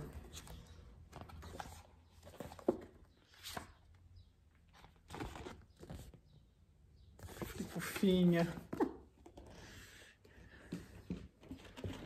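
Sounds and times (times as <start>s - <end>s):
book pages rustling: 0.0s - 4.0s, 4.6s - 6.3s.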